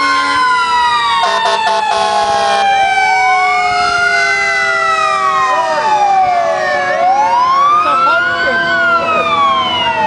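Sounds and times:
fire engine sirens wailing: 0:00.0 - 0:10.0
stuttering horn blast: 0:01.2 - 0:02.6.

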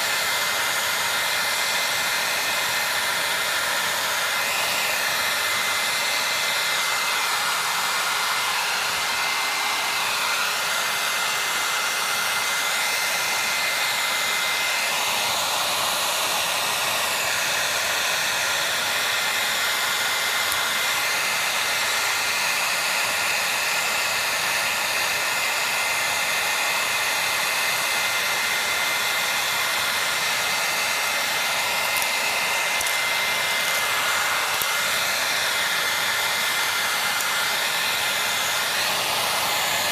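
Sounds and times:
blower rushing air: 0:00.0 - 0:39.9.

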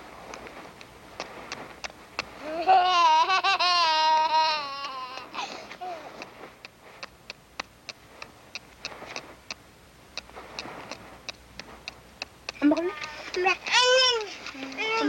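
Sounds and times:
faint steady hiss: 0:00.0 - 0:15.0.

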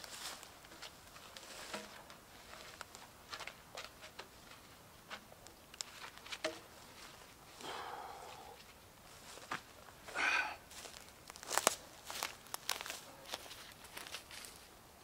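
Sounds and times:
footsteps in dry leaves: 0:00.0 - 0:04.8, 0:09.0 - 0:14.8
twigs crackling: 0:00.0 - 0:07.7, 0:08.6 - 0:14.7.

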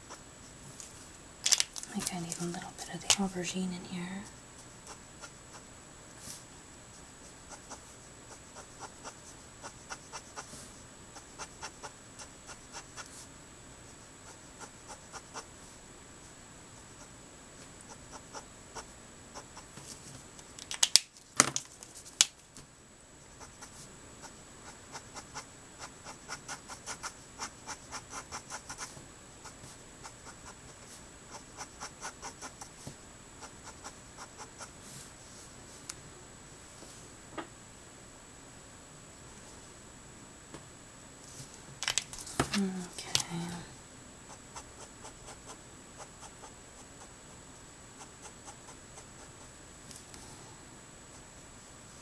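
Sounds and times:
marker scratching on paper: 0:07.2 - 0:13.3, 0:23.3 - 0:23.8, 0:24.6 - 0:32.8, 0:33.4 - 0:34.8.

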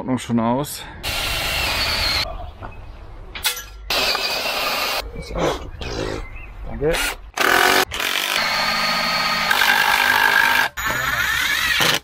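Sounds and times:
cordless drill driving screws: 0:01.1 - 0:02.2, 0:07.4 - 0:12.0.

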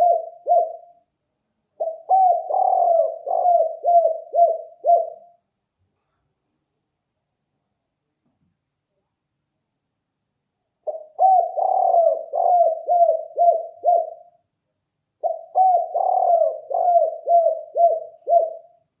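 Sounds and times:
dove cooing: 0:00.0 - 0:01.0, 0:01.8 - 0:05.4, 0:10.8 - 0:14.4, 0:15.2 - 0:18.8.

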